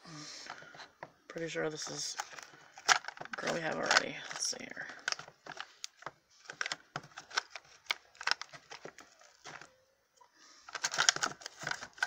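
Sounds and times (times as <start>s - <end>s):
paper crinkling: 1.8s - 9.8s, 10.6s - 12.0s
plastic packaging clicks: 2.1s - 9.7s, 10.7s - 12.0s.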